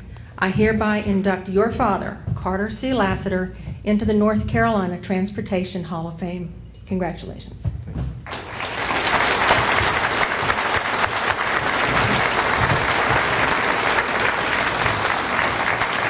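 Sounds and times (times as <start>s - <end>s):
audience applauding: 8.3s - 16.0s.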